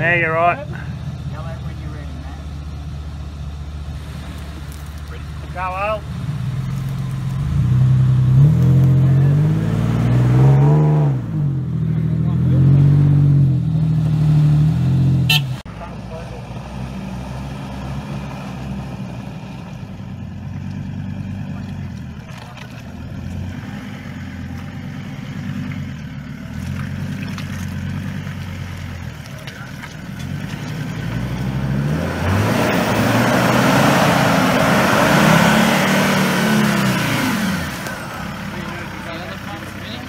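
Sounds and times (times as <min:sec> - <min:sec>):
truck engine revving: 0:00.0 - 0:40.0
tyres churning mud: 0:20.5 - 0:40.0.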